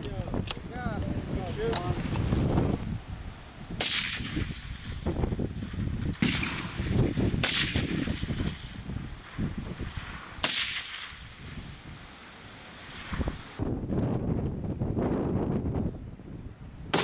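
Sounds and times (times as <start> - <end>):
wind rumbling on microphone: 0.0 - 12.1, 12.8 - 17.0
suppressed rifle shots: 3.8 - 5.0, 6.1 - 11.4.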